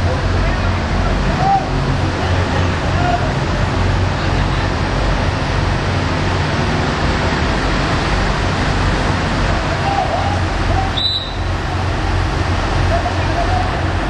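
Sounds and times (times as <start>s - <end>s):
heavy machinery rumbling: 0.0s - 14.0s.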